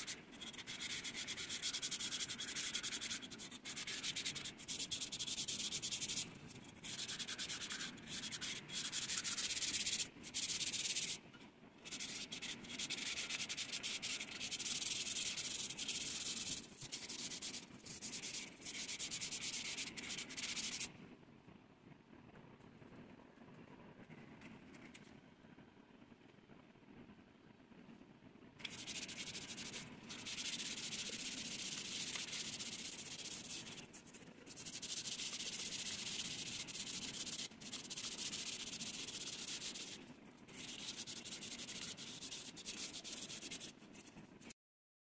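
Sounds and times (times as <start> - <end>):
sandpaper rubbing on metal: 0.0 - 11.2, 11.8 - 20.9, 28.6 - 44.1.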